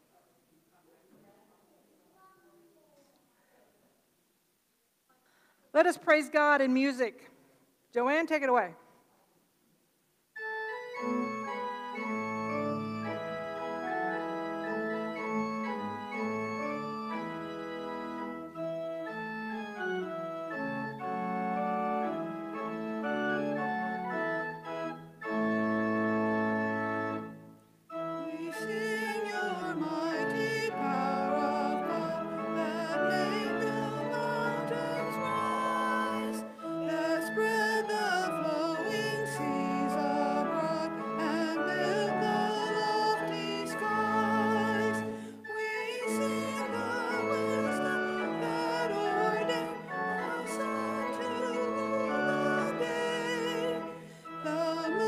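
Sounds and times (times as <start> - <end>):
church organ chords: 10.4 - 55.0
person singing: 28.2 - 55.0.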